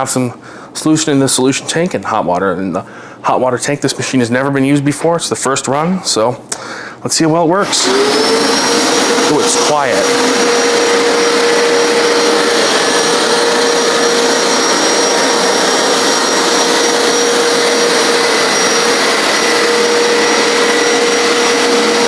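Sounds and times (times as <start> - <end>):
carpet cleaner motor whirring: 7.6 - 22.0.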